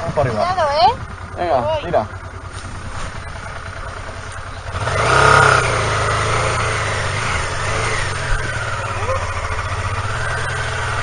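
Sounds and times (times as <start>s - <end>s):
motorcycle engine revving: 0.0s - 11.0s.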